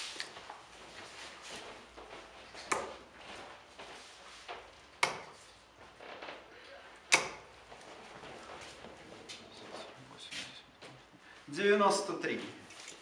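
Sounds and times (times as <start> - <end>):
darts thudding into dartboard: 5.0 - 5.4, 7.1 - 7.5.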